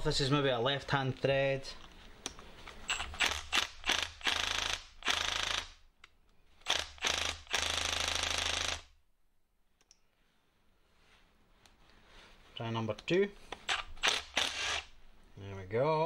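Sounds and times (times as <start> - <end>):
impact wrench hammering: 2.9 - 5.8, 6.6 - 8.9.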